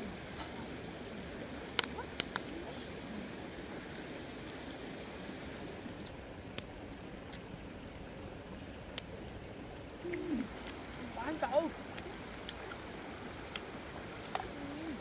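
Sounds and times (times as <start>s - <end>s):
steady low hiss: 0.0s - 15.0s
wood fire crackling and popping: 0.0s - 15.0s
person humming: 10.0s - 10.5s, 14.4s - 15.0s.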